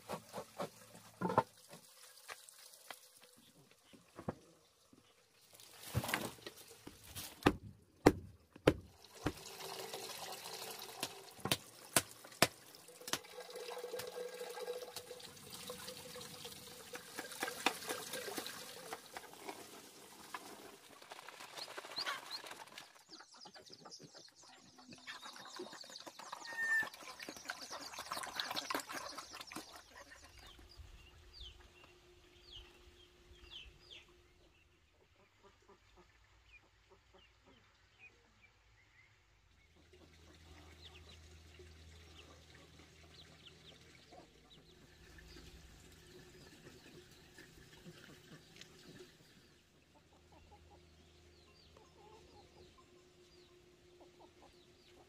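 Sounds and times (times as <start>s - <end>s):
sharp knocks and thuds: 7.2s - 9.4s
water sloshing and splashing: 25.4s - 30.5s.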